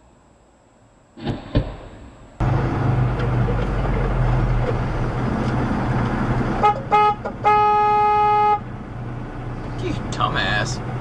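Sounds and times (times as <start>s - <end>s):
truck engine humming: 1.9s - 11.0s
truck horn honking: 6.6s - 8.8s.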